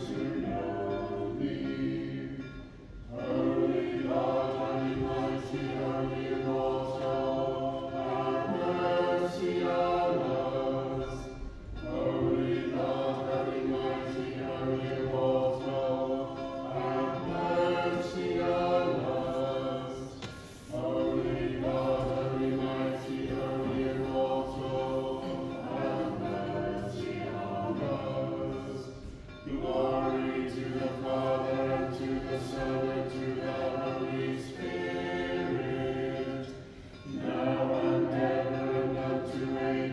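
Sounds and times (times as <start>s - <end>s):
choir singing unaccompanied chant: 0.0s - 39.9s.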